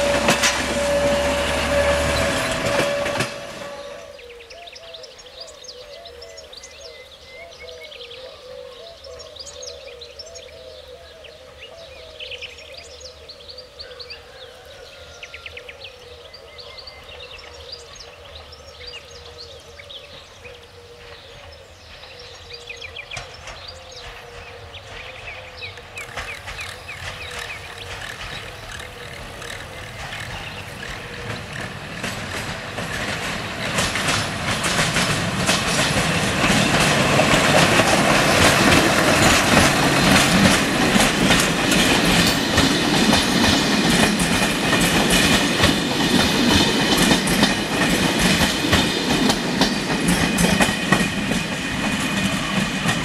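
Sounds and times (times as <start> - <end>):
train wheels clattering over rail joints: 0.0 - 4.1, 21.0 - 53.0
locomotive engine droning: 0.0 - 4.5, 17.8 - 53.0
birdsong: 0.0 - 53.0.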